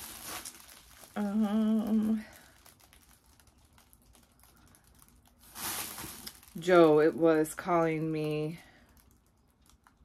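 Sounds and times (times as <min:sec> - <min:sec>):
woman humming: 0:01.2 - 0:02.4.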